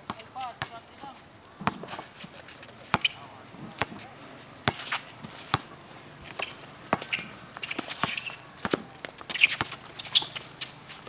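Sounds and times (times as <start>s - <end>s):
basketball bouncing on concrete: 0.1s - 0.8s, 1.6s - 2.0s, 2.9s - 5.7s, 6.3s - 10.6s
footsteps on court: 0.1s - 11.0s
sneaker squeaks: 1.6s - 11.0s.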